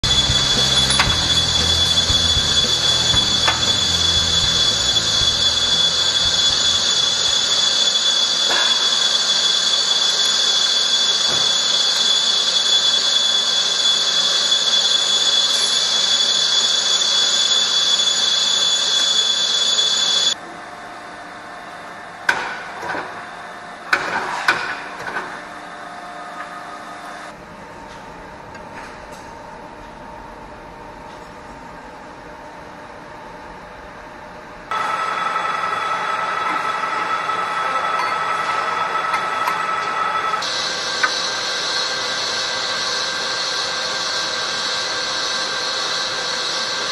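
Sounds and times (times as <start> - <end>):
machinery hissing and whining: 0.0 - 20.5, 34.7 - 46.9.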